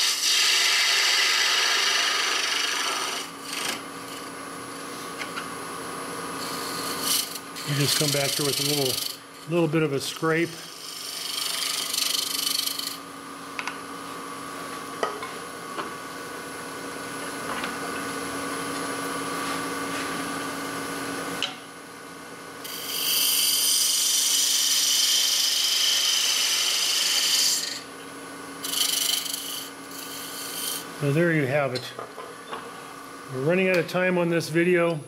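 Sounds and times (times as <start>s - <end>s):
turning tool scraping wood: 0.0s - 4.3s, 6.4s - 13.0s, 22.7s - 27.8s, 28.6s - 30.9s
lathe motor hum: 0.2s - 5.4s, 6.3s - 13.1s, 22.7s - 27.9s, 28.6s - 31.1s.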